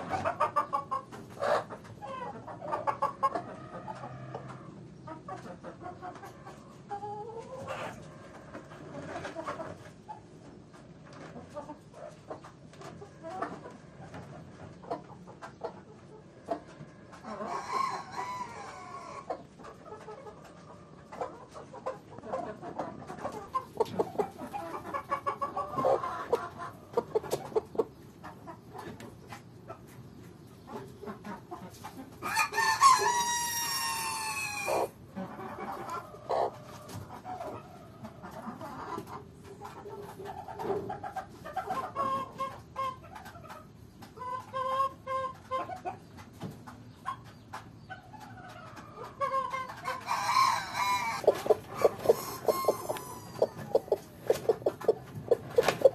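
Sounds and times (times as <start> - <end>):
chickens clucking: 0.0 - 55.9
rooster crowing: 32.2 - 34.9, 50.0 - 53.8.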